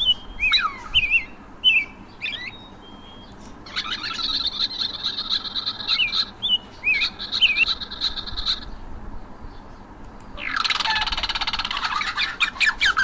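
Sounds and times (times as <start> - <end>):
fast buzzy bird trill: 0.0 - 8.9, 10.4 - 13.0
small birds chirping: 0.0 - 13.0
sharp clicks: 3.2 - 3.6, 10.0 - 10.4.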